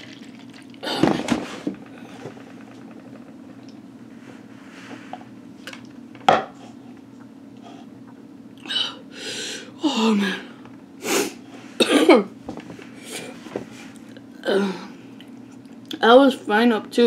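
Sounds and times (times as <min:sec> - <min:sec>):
milk pouring into a paper cup: 0:00.0 - 0:00.8.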